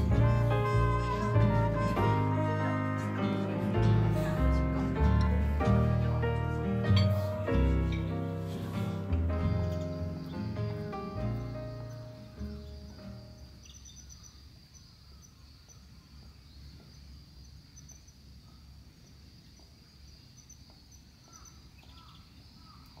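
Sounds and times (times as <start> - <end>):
background music: 0.0 - 13.6.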